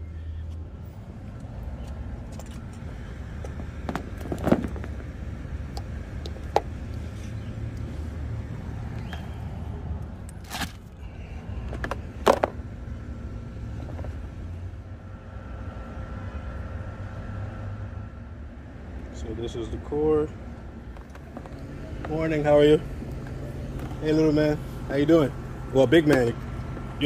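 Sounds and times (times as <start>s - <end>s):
handling knocks and clicks: 1.8s - 5.1s, 21.0s - 22.2s.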